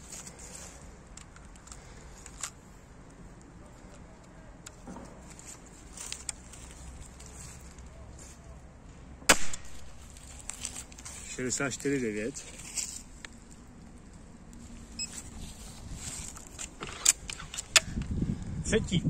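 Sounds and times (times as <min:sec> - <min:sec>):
crossbow handling clicks and rustles: 0:00.0 - 0:08.4, 0:09.6 - 0:18.2
crossbow firing snap: 0:09.3 - 0:09.8.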